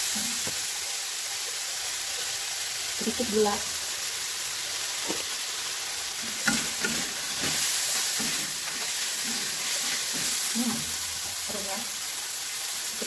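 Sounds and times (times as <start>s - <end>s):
food sizzling in a wok: 0.0s - 13.0s
metal spatula scraping a wok: 6.3s - 10.5s.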